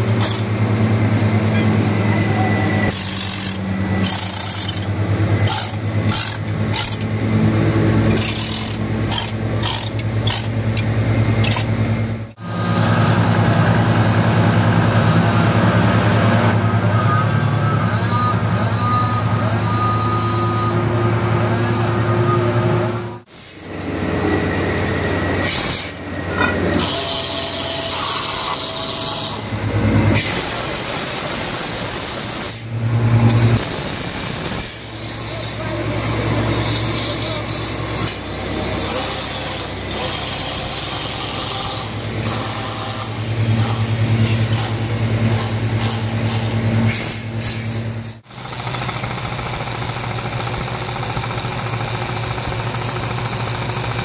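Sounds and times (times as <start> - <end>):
drill rig engine droning: 0.0 - 54.0.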